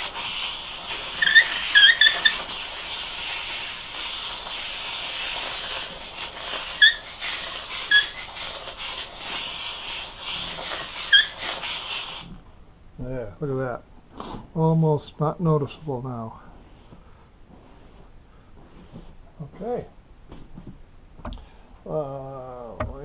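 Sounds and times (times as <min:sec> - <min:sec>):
steamer hissing: 0:00.0 - 0:12.4
short high squeaks: 0:01.1 - 0:02.5, 0:06.7 - 0:08.3, 0:10.4 - 0:11.7.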